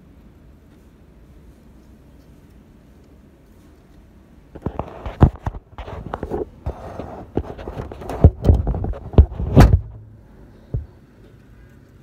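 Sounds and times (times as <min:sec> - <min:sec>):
plastic printer covers knocking: 0:07.4 - 0:10.0.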